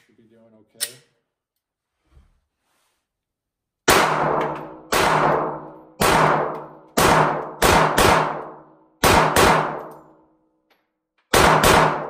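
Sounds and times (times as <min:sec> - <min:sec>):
pistol shots with echo: 0:03.9 - 0:10.0, 0:11.3 - 0:12.0.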